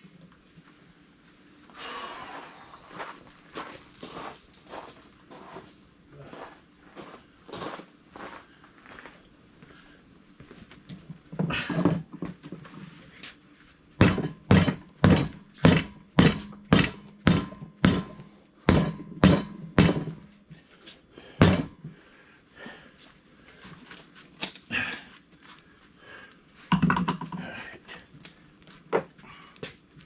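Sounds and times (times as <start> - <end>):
sharp knocks with low ring: 14.0 - 20.3.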